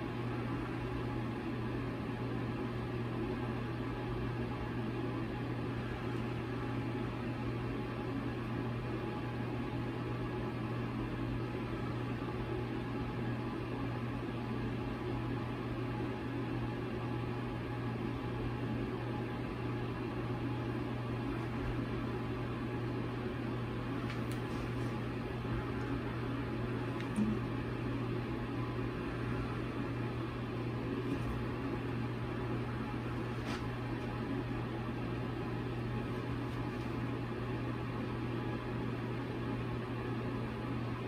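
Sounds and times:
low hum: 0:20.9 - 0:38.0.

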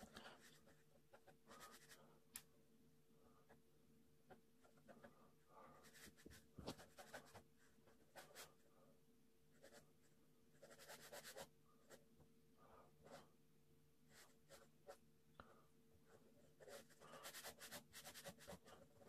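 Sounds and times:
ballpoint pen scratching on paper: 0:05.8 - 0:08.6, 0:10.6 - 0:11.5, 0:16.5 - 0:19.0.

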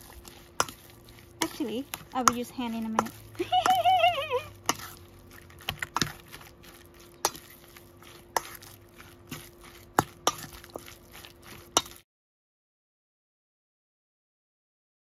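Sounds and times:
spoon scraping metal bowl: 0:00.0 - 0:03.8, 0:04.5 - 0:12.0.

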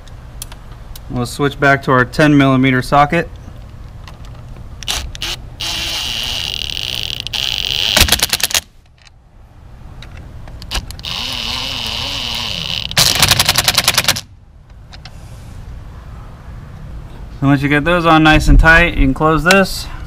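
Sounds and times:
cordless drill motor whirring: 0:04.8 - 0:08.0, 0:10.7 - 0:13.2.

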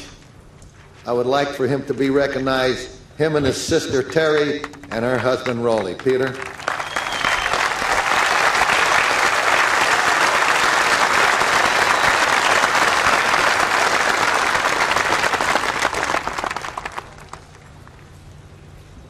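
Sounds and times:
large crowd applauding: 0:04.0 - 0:17.7.

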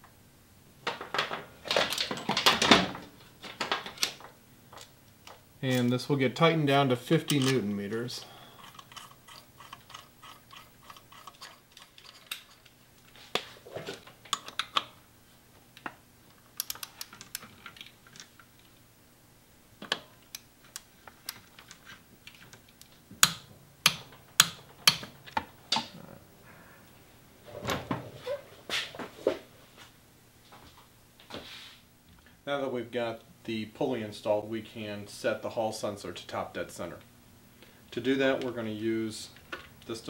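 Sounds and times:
metal clicks and clinks: 0:07.2 - 0:07.6.

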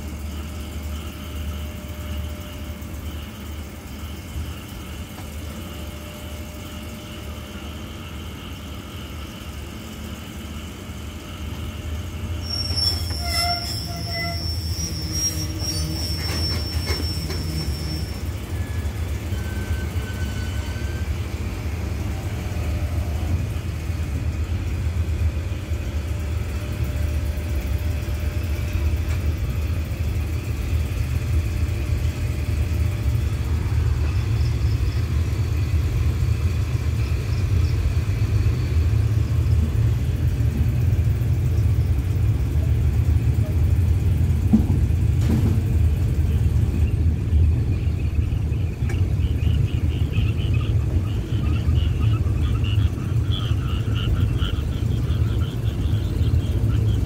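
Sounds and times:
train coach rumbling on rails: 0:00.0 - 0:57.0
high thin squeal: 0:12.3 - 0:21.1.

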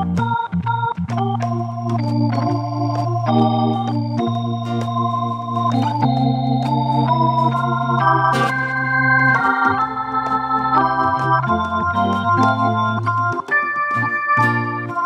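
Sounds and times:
organ-toned keyboard chords: 0:00.0 - 0:15.0
plucked string instrument: 0:00.0 - 0:15.0
held bass note: 0:03.8 - 0:13.2.

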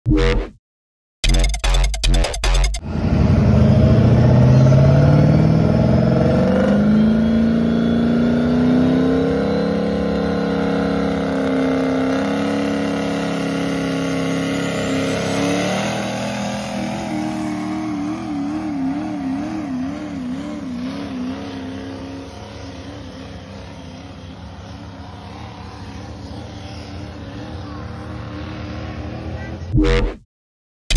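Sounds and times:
diesel truck engine revving: 0:02.4 - 0:30.2.

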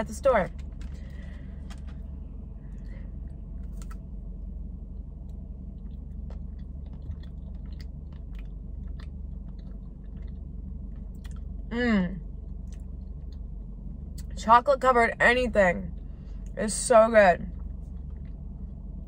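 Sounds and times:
steady low hum: 0:00.0 - 0:19.0
chewing and biting: 0:05.3 - 0:11.7, 0:17.5 - 0:19.0.

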